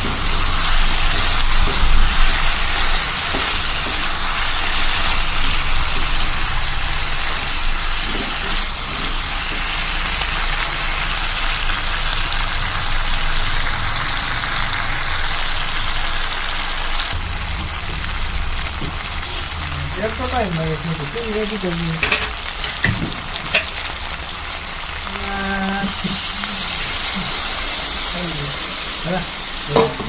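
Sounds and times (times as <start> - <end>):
curry sizzling in pan: 0.0 - 30.0
low hum: 17.0 - 21.8.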